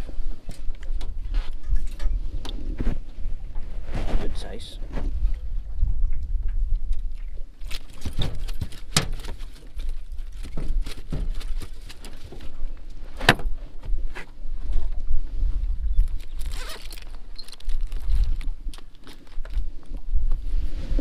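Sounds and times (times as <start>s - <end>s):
wind rumble on microphone: 0.0s - 21.0s
knocks and clicks in boat: 6.1s - 14.0s.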